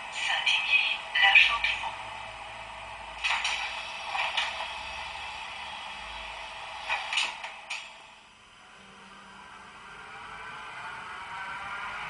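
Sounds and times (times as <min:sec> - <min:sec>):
sharp clicks and knocks: 0:06.9 - 0:07.9.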